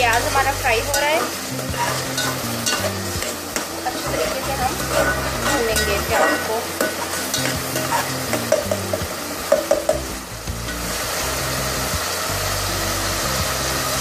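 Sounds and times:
onion sizzling in oil: 0.0 - 14.0
metal spoon scraping a pot: 0.1 - 10.0.

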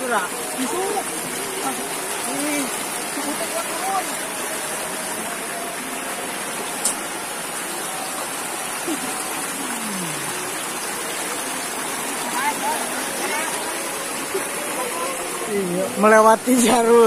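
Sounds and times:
floodwater rushing: 0.0 - 17.0.

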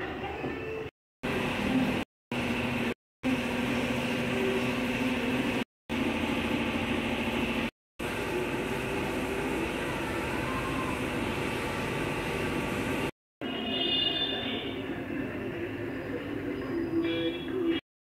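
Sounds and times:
machine hum: 1.2 - 13.2.

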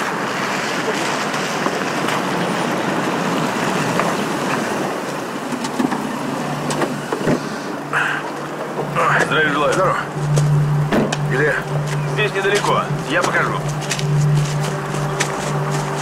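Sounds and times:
car driving on wet asphalt: 0.0 - 16.0
car engine running: 4.7 - 16.0.

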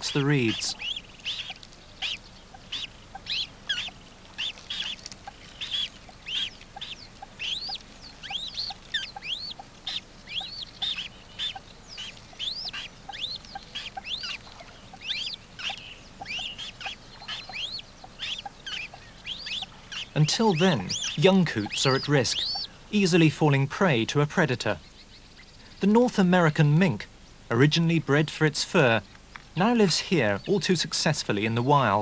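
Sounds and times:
bird chicks peeping: 0.0 - 32.0.

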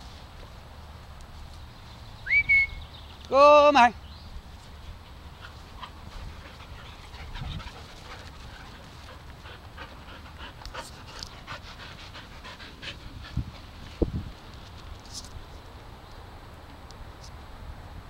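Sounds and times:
dog panting: 5.3 - 13.8.

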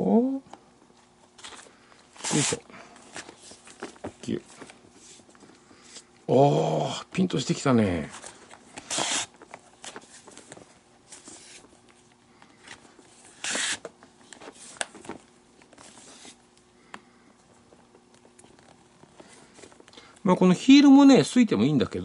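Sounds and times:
lace pulled through leather glove: 8.8 - 9.4, 13.4 - 13.8.

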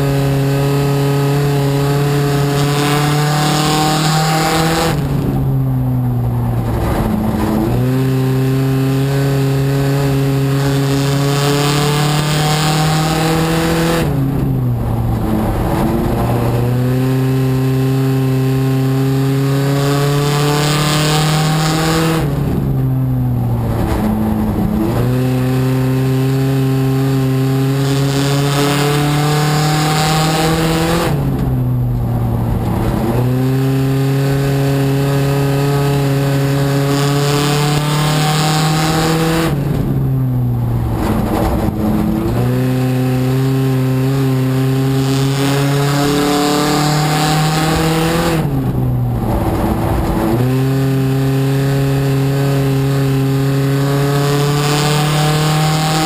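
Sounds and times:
race car engine at high revs: 0.0 - 56.0
wind and tyre noise: 0.0 - 56.0.

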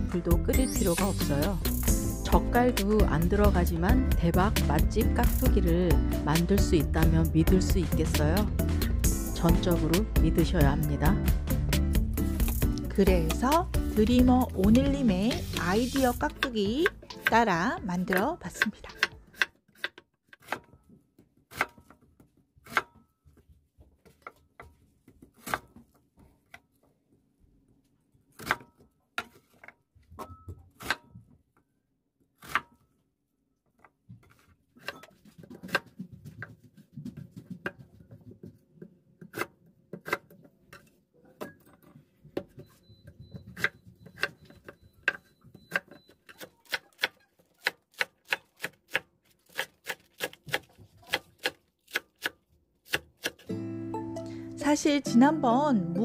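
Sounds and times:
knife chopping on wooden board: 11.5 - 20.8, 21.5 - 22.0, 22.6 - 23.0, 28.4 - 29.5, 32.4 - 32.8, 43.3 - 53.5.

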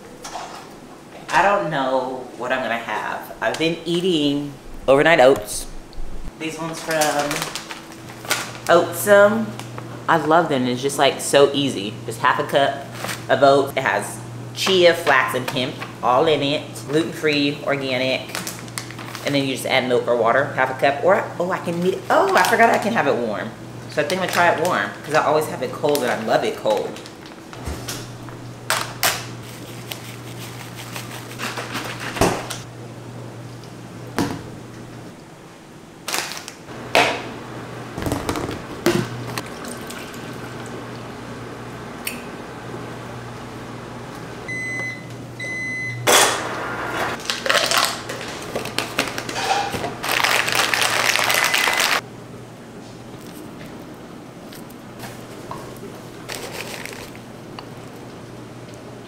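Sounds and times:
microwave oven humming: 0.0 - 59.0
short beeps: 44.5 - 46.0.

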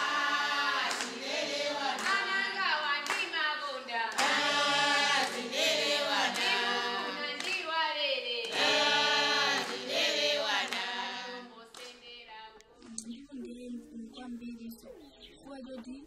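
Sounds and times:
group singing without instruments: 0.0 - 12.0.

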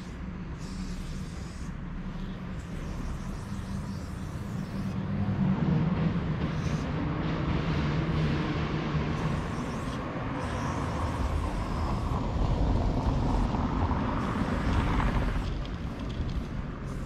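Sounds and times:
cars passing: 4.6 - 17.0.

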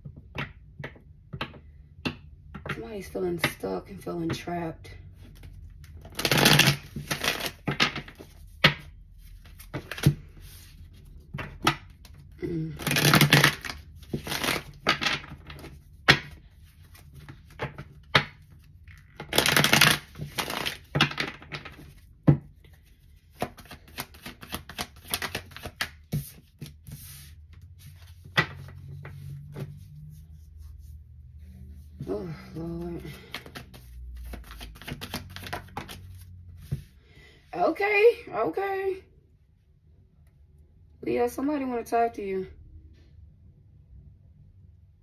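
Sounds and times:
card rustling: 5.3 - 31.0, 32.8 - 36.9
cards riffle-shuffled: 5.4 - 29.9, 32.9 - 36.9
cards tapping: 12.8 - 29.8, 33.0 - 36.9.

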